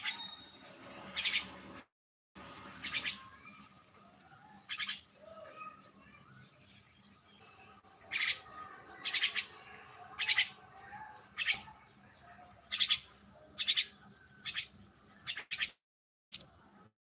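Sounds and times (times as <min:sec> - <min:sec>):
myna harsh raspy calls: 0:08.1 - 0:09.6.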